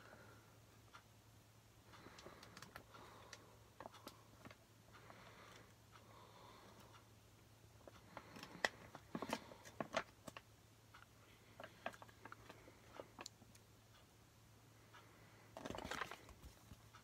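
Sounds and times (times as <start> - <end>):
paper pages flipping: 15.6 - 16.8.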